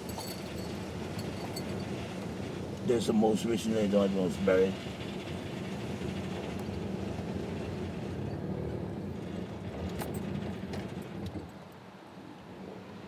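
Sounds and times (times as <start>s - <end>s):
vehicle low rumble: 0.0s - 13.0s.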